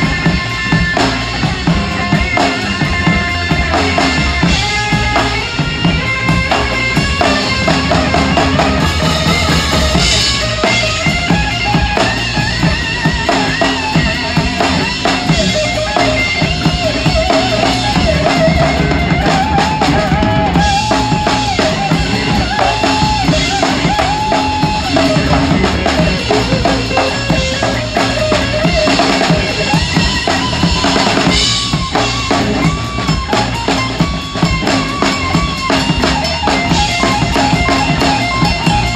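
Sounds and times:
drum kit playing: 0.0 - 38.9.

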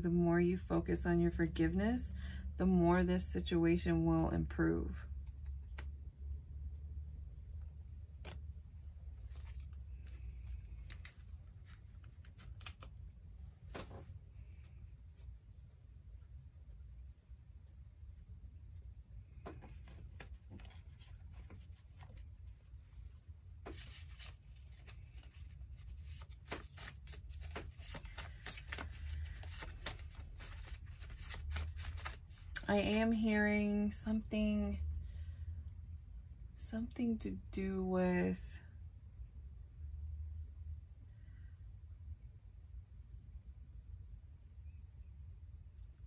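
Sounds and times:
low steady hum: 0.0 - 46.0
cards being shuffled: 8.0 - 14.8, 19.4 - 22.8, 23.6 - 33.2.

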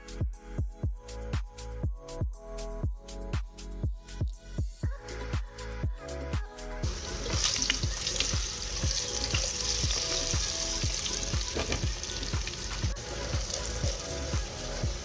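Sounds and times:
background music with beat: 0.0 - 15.0
potatoes sizzling in oil: 6.8 - 15.0.

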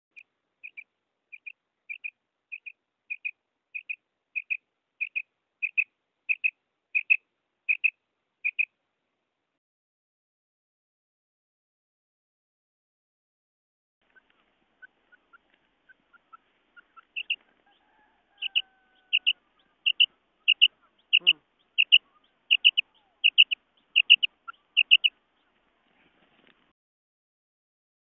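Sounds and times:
quail calling: 0.6 - 8.7, 14.1 - 25.8.

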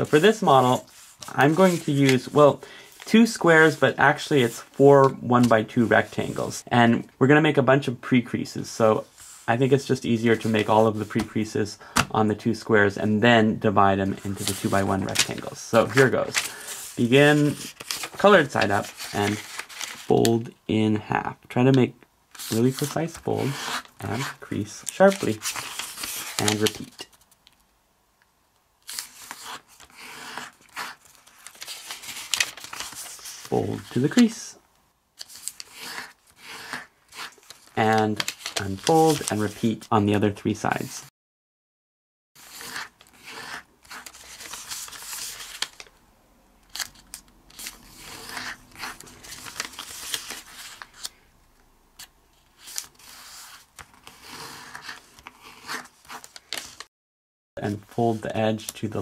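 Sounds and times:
paper crackling as creased: 0.0 - 3.8, 14.2 - 20.3, 22.3 - 27.4, 28.8 - 34.4, 35.2 - 39.7, 42.4 - 45.9, 46.7 - 51.2, 52.0 - 56.9
paper rustling and sliding: 0.0 - 6.6, 14.0 - 20.4, 22.3 - 27.3, 28.8 - 34.6, 35.2 - 39.8, 42.4 - 45.9, 46.7 - 51.2, 52.3 - 56.9.

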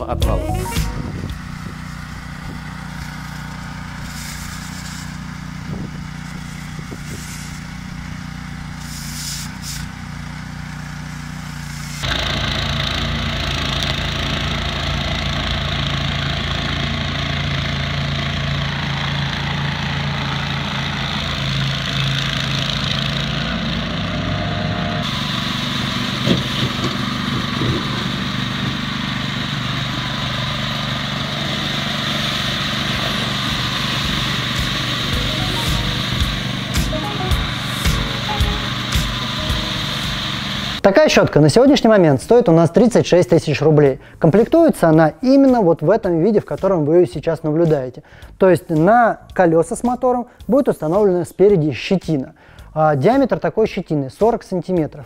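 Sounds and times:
small engine running: 1.2 - 40.8
strong hiss: 4.0 - 7.8, 8.7 - 9.9.

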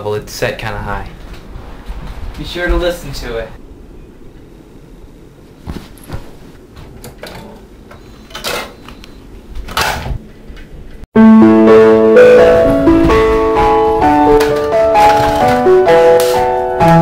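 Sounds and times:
loud keyboard music: 11.2 - 17.0.

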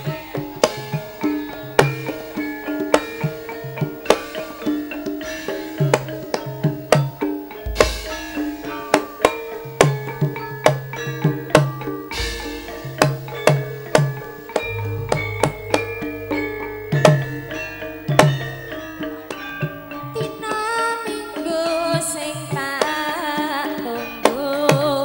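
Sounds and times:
deep low drum strokes: 12.2 - 13.4, 14.6 - 19.8
hand drum strokes: 12.2 - 13.6, 14.6 - 19.8
ringing metallophones and gong-chimes: 14.6 - 21.2.

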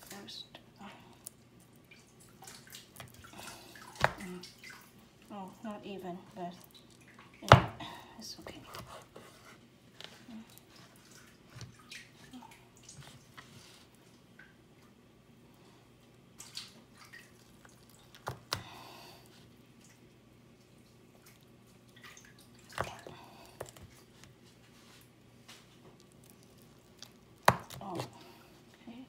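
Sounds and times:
knife cutting through dough: 8.5 - 11.7.

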